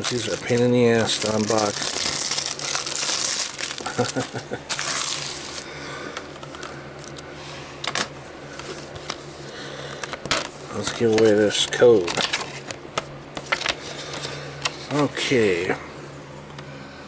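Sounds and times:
plastic wrap tearing and crinkling: 0:00.0 - 0:05.6.

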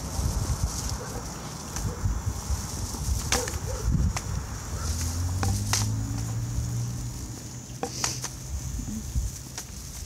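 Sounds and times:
footsteps on pavement: 0:00.0 - 0:10.0.

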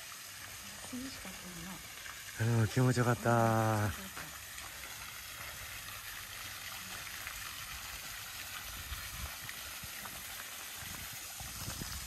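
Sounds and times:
waterfall rushing into pond: 0:00.0 - 0:12.0.

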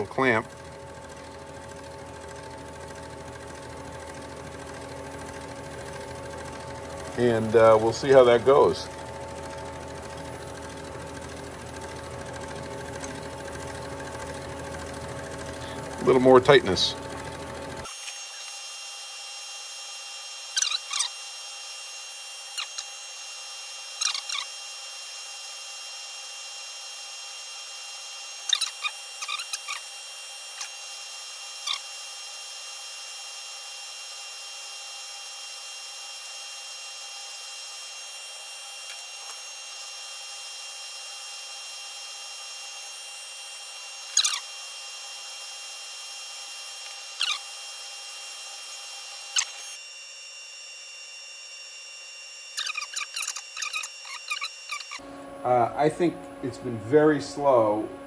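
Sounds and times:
metal lathe humming: 0:00.0 - 0:55.1
short squeaks and clicks: 0:20.5 - 0:21.2, 0:22.5 - 0:23.0, 0:23.9 - 0:24.6, 0:28.3 - 0:30.9, 0:31.6 - 0:32.0, 0:38.8 - 0:39.6, 0:44.0 - 0:44.6, 0:46.8 - 0:47.7, 0:48.6 - 0:49.8, 0:52.4 - 0:55.0.

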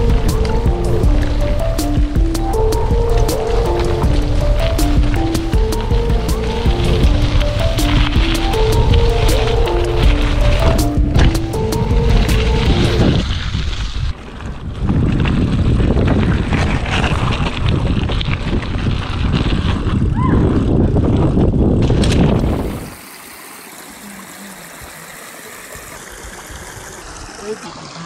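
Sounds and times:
stream trickling over rocks: 0:00.0 - 0:14.1, 0:21.9 - 0:28.0
wind buffeting microphone: 0:00.0 - 0:23.0
bike tyres rumbling and rattling: 0:00.0 - 0:24.1, 0:25.7 - 0:28.0.

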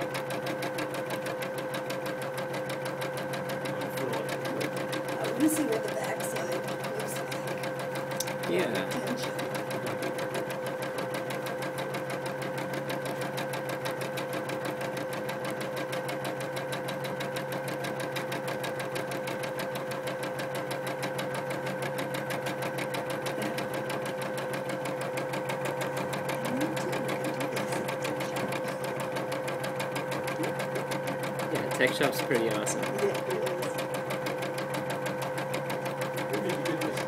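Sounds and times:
embroidery machine needle stitching: 0:00.0 - 0:37.0
steady motor hum: 0:00.0 - 0:37.0.

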